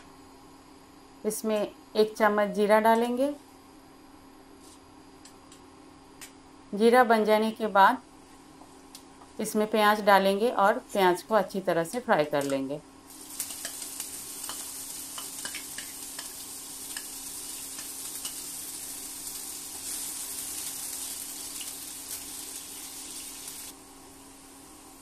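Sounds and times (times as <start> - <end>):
onion sizzling in hot oil: 12.4 - 25.0.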